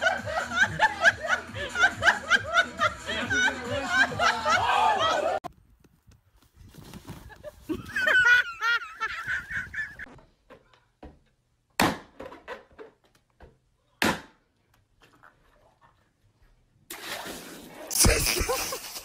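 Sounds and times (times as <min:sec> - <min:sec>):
balloons bursting: 0:17.9 - 0:18.7.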